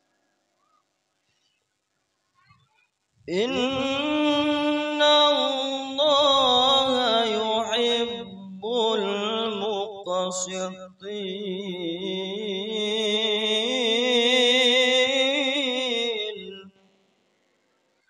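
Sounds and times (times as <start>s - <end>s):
man reciting melodically over pa: 3.3s - 16.7s.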